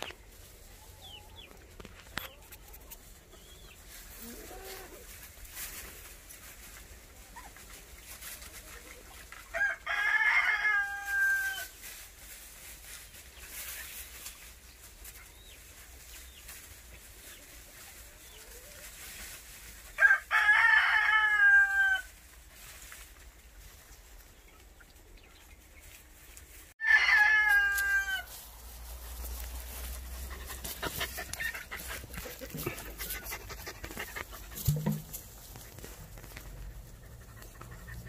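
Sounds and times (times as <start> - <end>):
rooster crowing: 9.6 - 11.6, 20.0 - 22.1, 26.8 - 28.3
soft rustling: 27.4 - 38.0.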